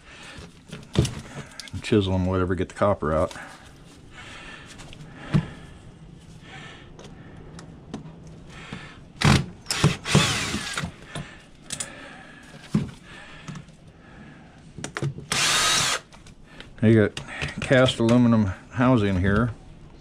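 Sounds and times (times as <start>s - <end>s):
cordless drill whirring: 9.2s - 11.0s, 15.3s - 16.1s.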